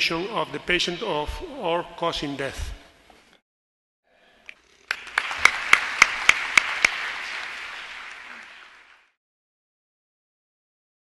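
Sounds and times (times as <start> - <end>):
audience applauding: 4.6 - 9.2
loud close claps: 4.9 - 9.2.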